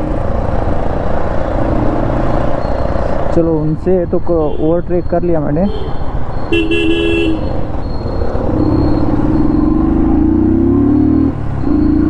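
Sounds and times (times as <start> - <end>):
vehicle horn toot: 5.6 - 7.5
motorcycle engine accelerating: 7.6 - 12.0.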